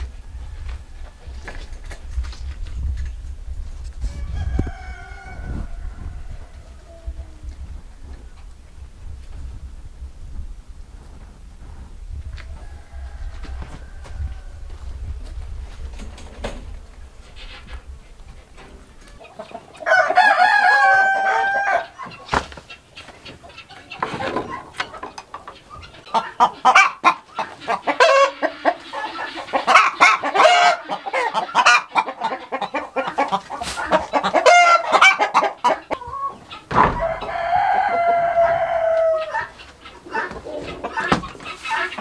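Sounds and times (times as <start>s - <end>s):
chickens clucking: 0.0s - 42.0s
rooster crowing: 4.0s - 7.0s, 12.5s - 14.8s, 19.8s - 22.0s, 36.9s - 39.5s.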